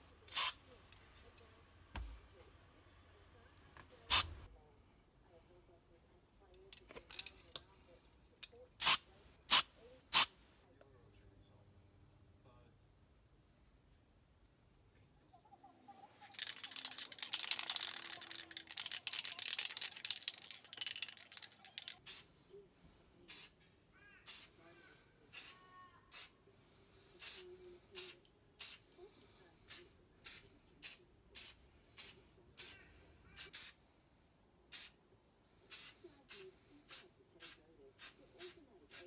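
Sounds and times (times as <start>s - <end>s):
short spray bursts: 0.3s - 0.6s, 4.1s - 4.4s, 8.8s - 10.4s, 24.3s - 24.5s, 25.3s - 26.3s, 28.0s - 28.8s, 33.4s - 33.8s, 34.7s - 35.0s, 35.7s - 39.0s.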